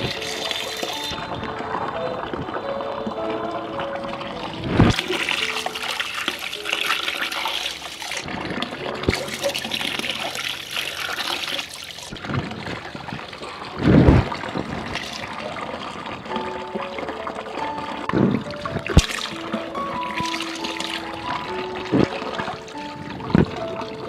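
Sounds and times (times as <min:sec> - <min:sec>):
water running and splashing: 0:00.0 - 0:24.0.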